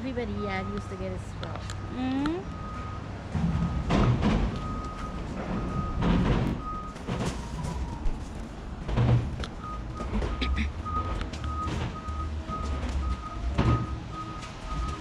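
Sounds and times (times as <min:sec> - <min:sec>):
reversing alarm beeping: 0:00.0 - 0:03.9, 0:04.5 - 0:08.0, 0:09.6 - 0:15.0
low thumps: 0:02.5 - 0:08.1.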